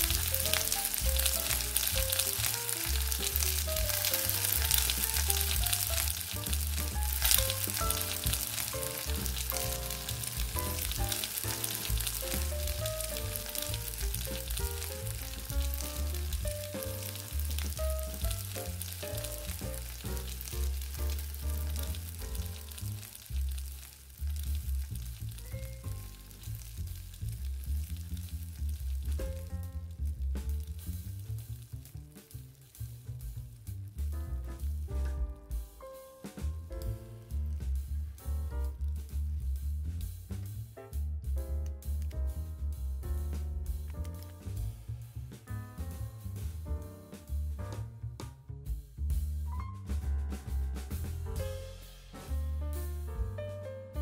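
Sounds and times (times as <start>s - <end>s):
pancakes sizzling in a pan: 0.0s - 34.0s
background music with bass line: 0.0s - 54.0s.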